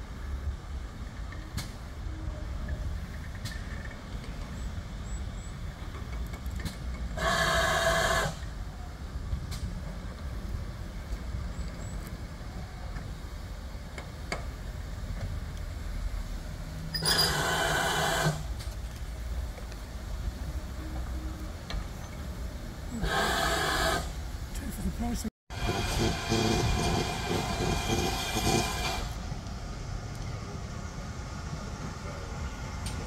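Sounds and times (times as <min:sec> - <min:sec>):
steam hissing blasts: 0:07.1 - 0:08.7, 0:16.9 - 0:19.3, 0:22.8 - 0:24.4, 0:25.5 - 0:29.5.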